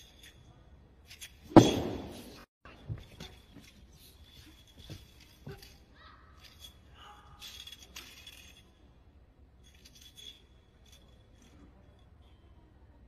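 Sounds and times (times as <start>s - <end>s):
spear swishing and rattling: 1.0s - 8.8s.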